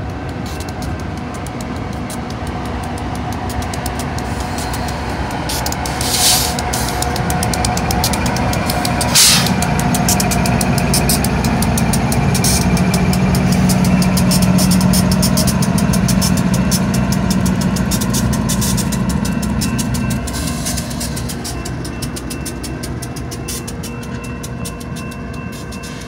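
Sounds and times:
diesel locomotive engines droning: 0.0s - 26.0s
wheels clattering on rails: 0.0s - 26.0s.

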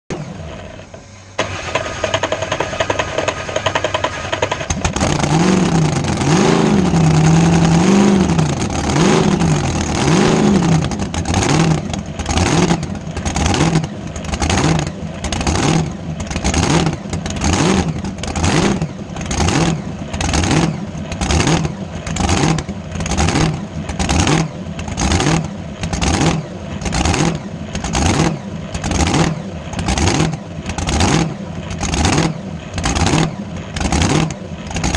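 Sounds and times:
boat engine starting and revving: 0.1s - 34.9s
starter motor whining: 0.2s - 5.4s.

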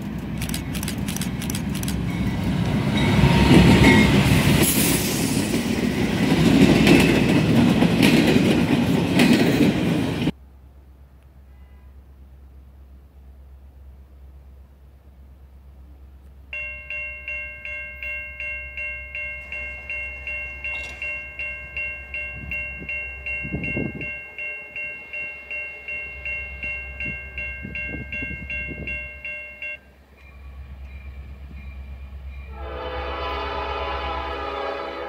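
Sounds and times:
railroad crossing bell ringing: 0.4s - 9.3s, 16.5s - 35.0s
locomotive horn: 11.4s - 12.2s, 32.5s - 35.0s.

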